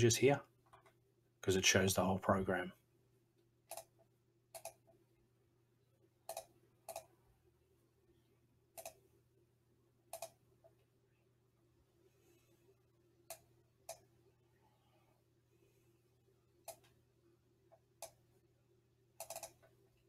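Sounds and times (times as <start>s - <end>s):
faint low hum: 0.0s - 20.0s
computer mouse clicks: 3.7s - 5.0s, 6.2s - 7.1s, 8.7s - 9.0s, 10.1s - 10.4s, 13.3s - 14.1s, 16.6s - 17.0s, 17.7s - 18.2s, 19.2s - 19.8s.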